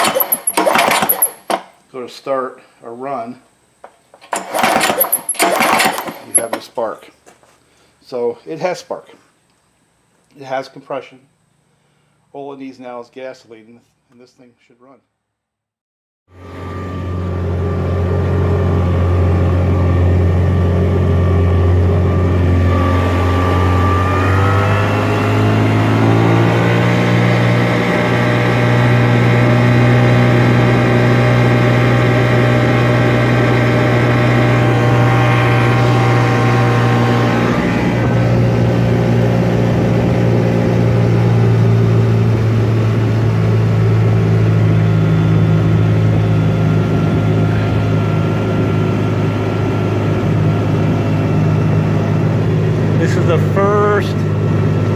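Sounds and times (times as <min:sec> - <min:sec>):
outboard motor running: 0:00.0 - 0:01.7, 0:04.1 - 0:06.6, 0:16.3 - 0:54.9.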